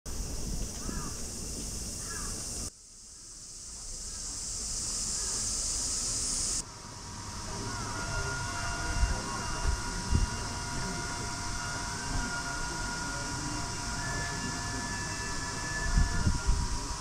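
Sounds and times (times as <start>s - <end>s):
insects shrilling: 0.7s - 6.6s.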